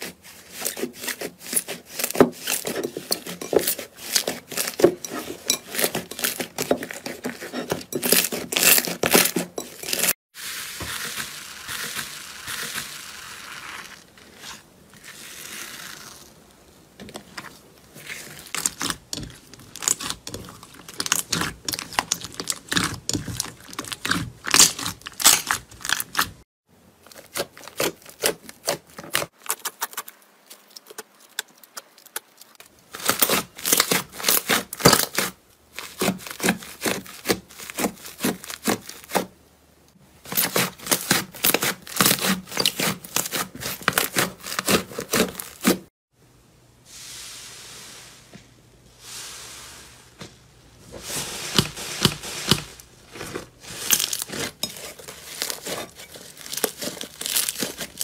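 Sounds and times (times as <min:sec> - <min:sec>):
slime crackling and popping: 0:18.5 - 0:26.4, 0:53.7 - 0:58.0.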